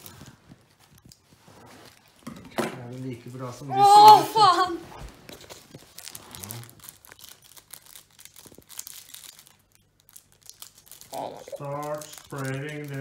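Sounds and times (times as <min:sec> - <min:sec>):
foil wrapper crinkling and tearing: 0:05.2 - 0:13.0.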